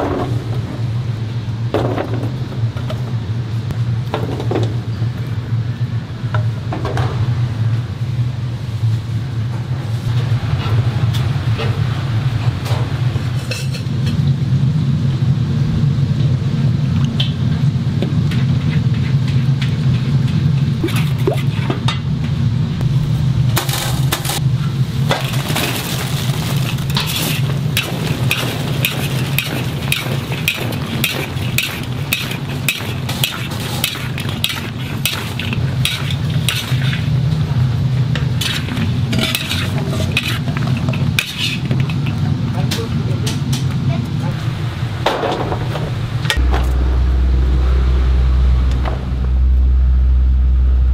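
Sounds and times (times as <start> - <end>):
steady low hum: 0.0 - 50.9
rush of noise: 7.9 - 50.9.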